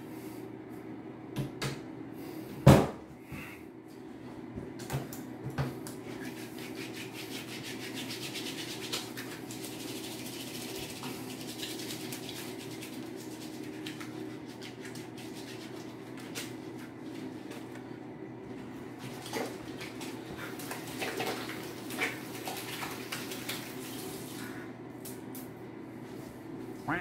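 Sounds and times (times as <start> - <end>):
low steady hum: 0.0 - 27.0
hands scrubbing with soap: 6.0 - 17.8, 18.9 - 24.6.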